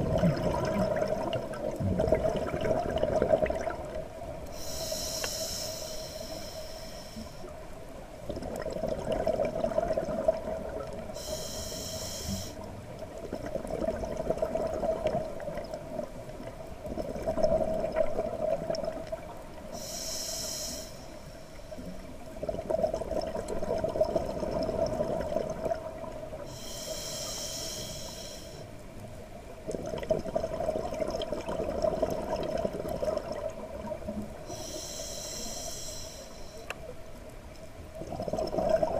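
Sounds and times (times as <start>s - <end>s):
exhaled air bubbling underwater: 0.0s - 38.9s
regulator hissing inhale: 4.4s - 7.7s, 11.2s - 12.7s, 19.7s - 22.0s, 26.4s - 28.8s, 34.4s - 36.8s.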